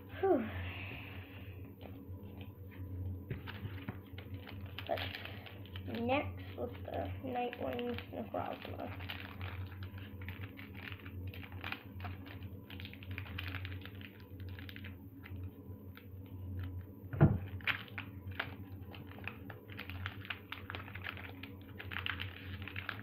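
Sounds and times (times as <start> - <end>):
foil wrapper crinkling and tearing: 3.4 - 23.0
loud thump: 17.2 - 17.4.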